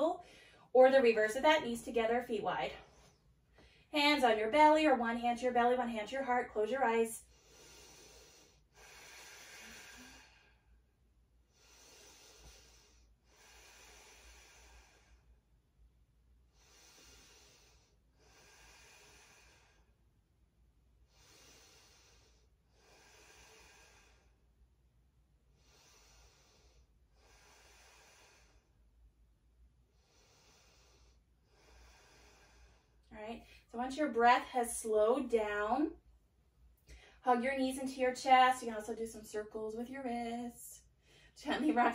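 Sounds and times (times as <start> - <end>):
woman breathing deeply: 0.2 - 0.7, 7.2 - 15.6, 16.4 - 20.2, 20.9 - 24.7, 25.4 - 33.7, 36.8 - 37.2, 40.8 - 41.4.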